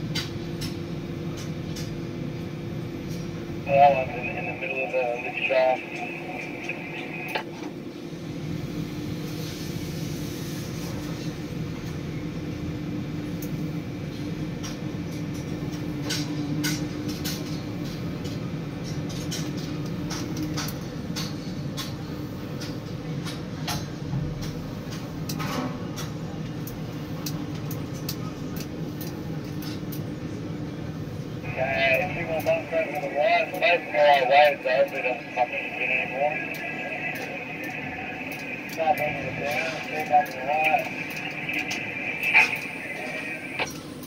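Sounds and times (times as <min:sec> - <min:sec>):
crane drive machinery humming: 0:02.4 - 0:09.2, 0:30.0 - 0:44.0.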